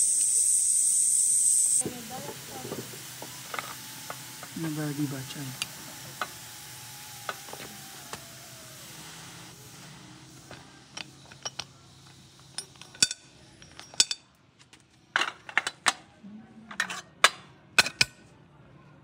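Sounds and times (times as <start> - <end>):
steam hissing from pressure cooker: 0.0 - 12.7.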